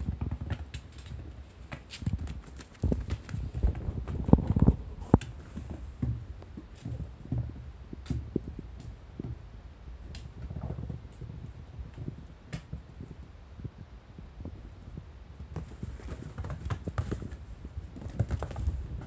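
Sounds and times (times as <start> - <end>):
kitten scuffling on cushion: 15.5 - 19.0.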